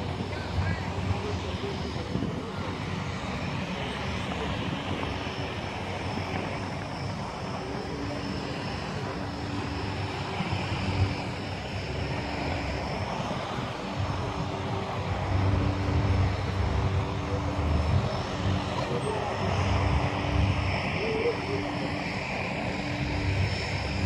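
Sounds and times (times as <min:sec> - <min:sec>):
aircraft engine drone: 0:00.0 - 0:24.0
low rumble: 0:09.9 - 0:21.7.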